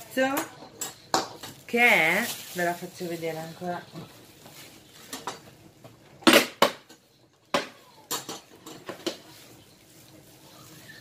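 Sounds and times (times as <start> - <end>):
metal mixer parts clinking: 0.1 - 4.1, 6.2 - 9.7.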